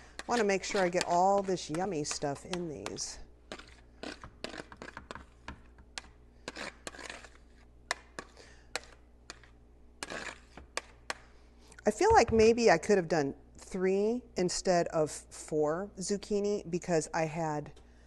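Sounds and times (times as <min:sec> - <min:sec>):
metal spoon scraping a colander: 0:00.0 - 0:02.8, 0:10.0 - 0:10.6.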